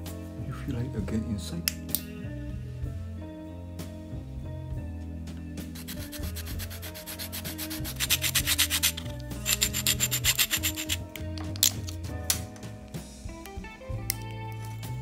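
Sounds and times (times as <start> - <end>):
sandpaper rasping: 5.8 - 11.0.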